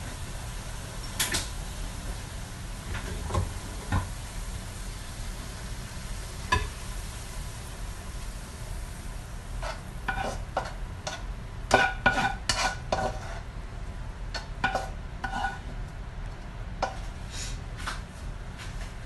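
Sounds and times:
spatula scraping a wok: 9.5s - 13.5s, 14.4s - 15.7s.

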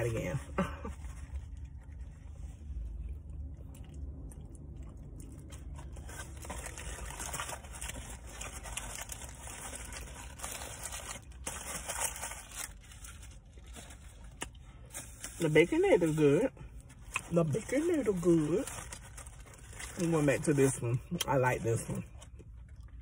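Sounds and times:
foil wrapper crinkling: 5.6s - 20.8s.

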